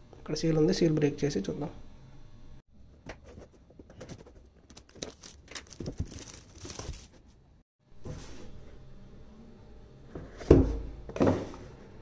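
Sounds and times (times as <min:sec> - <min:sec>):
plastic film crinkling and tearing: 0:04.6 - 0:07.4
knife slitting plastic wrap: 0:04.7 - 0:07.3.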